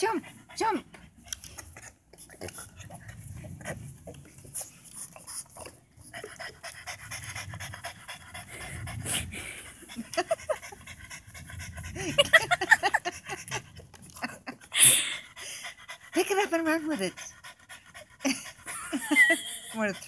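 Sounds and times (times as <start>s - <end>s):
dog panting: 0.0s - 20.0s.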